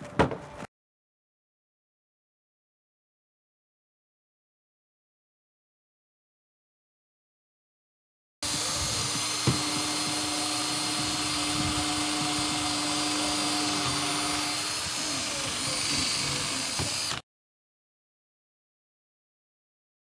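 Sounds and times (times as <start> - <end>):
cordless drill drilling into plastic: 8.4 - 17.2.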